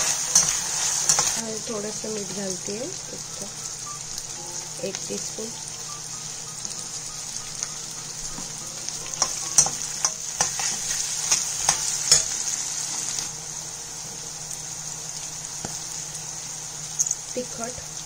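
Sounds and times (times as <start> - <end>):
metal spatula scraping a pan: 0.0 - 1.4, 9.1 - 12.4
onions frying in oil: 0.0 - 18.0.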